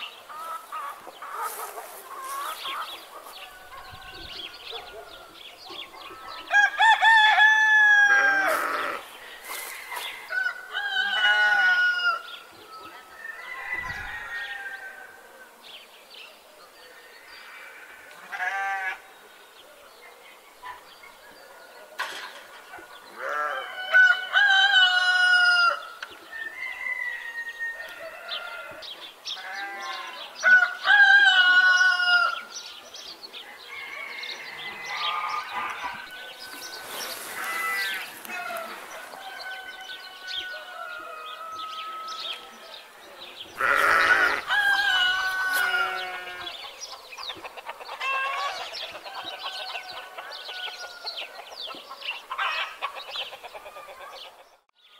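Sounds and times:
chickens clucking: 0.0s - 6.6s, 44.1s - 54.7s
sheep bleating: 8.1s - 9.1s, 17.7s - 19.0s, 23.2s - 23.7s, 37.3s - 38.7s, 43.6s - 46.6s.

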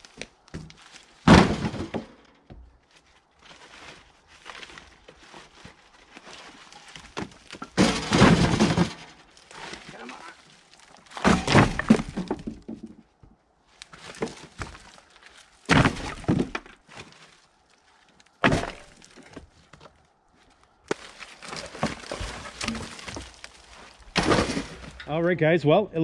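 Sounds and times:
firewood tossed into metal cage: 0.2s - 2.7s, 6.6s - 13.0s, 13.8s - 15.0s, 15.6s - 17.4s, 18.3s - 19.9s, 20.8s - 25.2s
wooden slabs knocking together: 7.1s - 9.9s, 11.0s - 13.0s, 15.7s - 17.1s, 20.9s - 23.5s.

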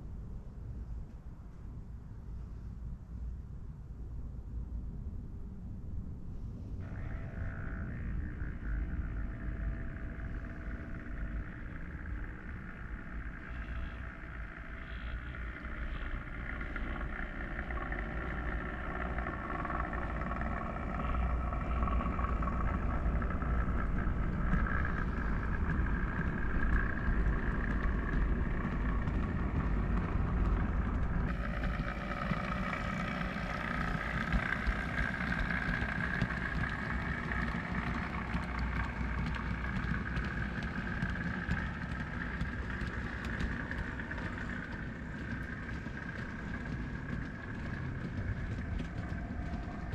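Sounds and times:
model train motor whine: 6.8s - 49.9s
wheels rumbling on track: 6.8s - 49.9s.

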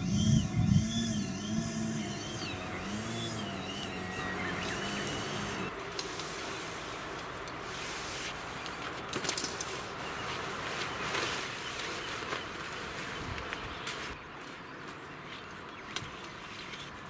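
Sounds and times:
nylon tent fly rustling: 5.7s - 14.6s.

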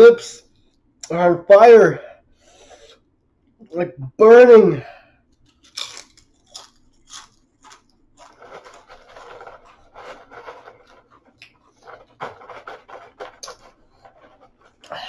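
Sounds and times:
tortilla chips crunching: 5.4s - 13.7s
hand rummaging in plastic tub: 8.1s - 14.8s.

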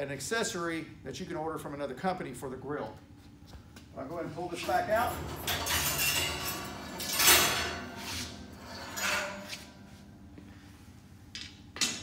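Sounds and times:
metal spit scraping and sliding: 4.6s - 9.9s.

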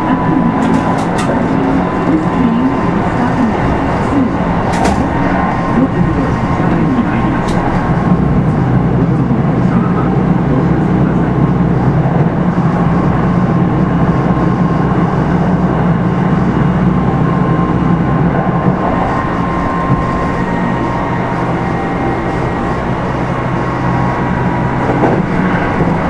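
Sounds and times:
electric train motor hum: 0.0s - 26.0s.

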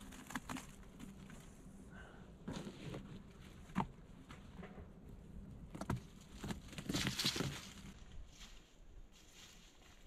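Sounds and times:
crackling and rustling of dry leaves: 0.0s - 1.8s, 5.8s - 10.0s.

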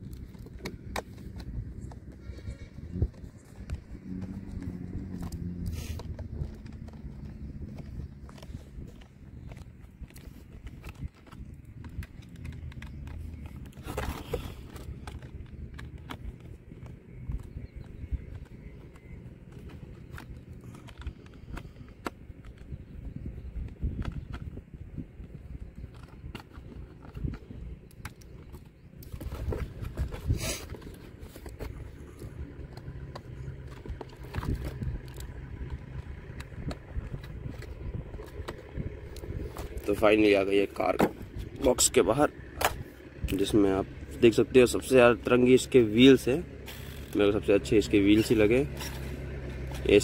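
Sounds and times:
steady low rumble: 0.0s - 50.0s
scraping rustle: 0.2s - 16.9s, 29.0s - 44.3s.

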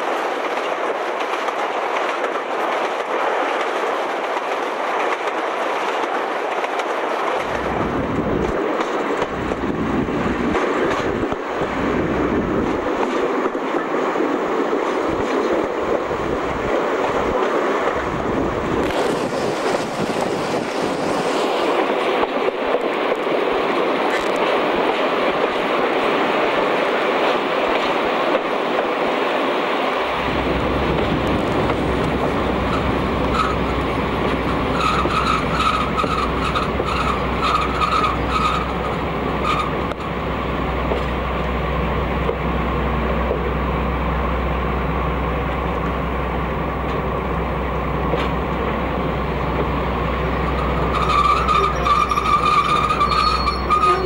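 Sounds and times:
wheels on rails: 0.0s - 43.5s, 48.0s - 54.0s
wind buffeting microphone: 0.0s - 53.8s
locomotive engine running: 30.0s - 54.0s.

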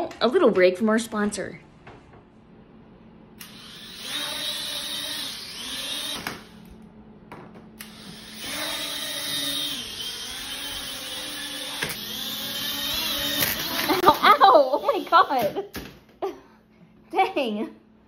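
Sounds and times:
drone propellers whining: 7.8s - 14.1s.

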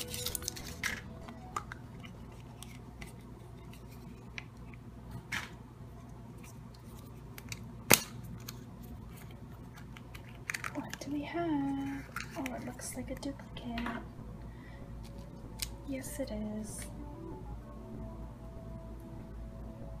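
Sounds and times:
plastic capsule snapping open: 9.8s - 11.0s, 15.0s - 15.8s.

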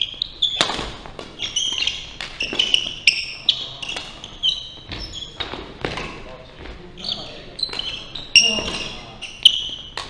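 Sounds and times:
sneakers squeaking on wooden floor: 0.0s - 10.0s
racket striking shuttlecock: 0.5s - 3.0s.

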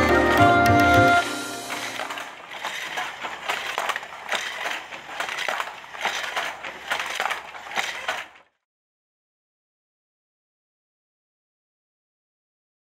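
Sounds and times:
wooden handloom clattering: 0.0s - 8.5s.

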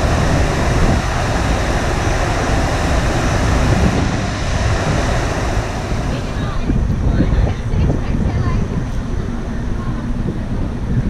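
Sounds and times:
rushing water: 0.0s - 8.2s
wind buffeting microphone: 0.0s - 11.0s.

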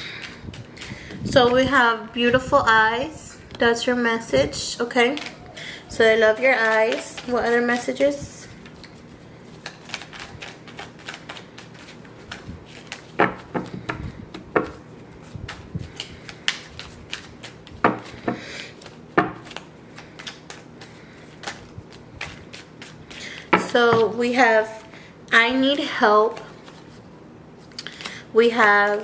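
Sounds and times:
cards being shuffled: 0.1s - 1.6s, 5.0s - 5.5s, 6.2s - 24.2s, 26.3s - 27.0s.

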